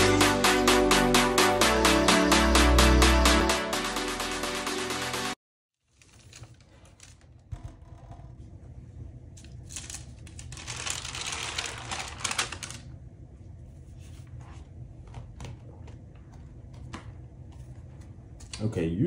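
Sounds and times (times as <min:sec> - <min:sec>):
paper crackling and rustling: 0:09.4 - 0:13.0.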